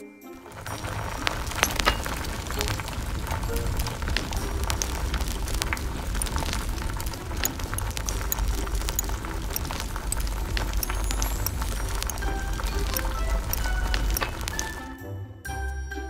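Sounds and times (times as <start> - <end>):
soft background music: 0.0 - 9.9, 10.5 - 16.0
crackling sizzle with pops: 0.4 - 14.9.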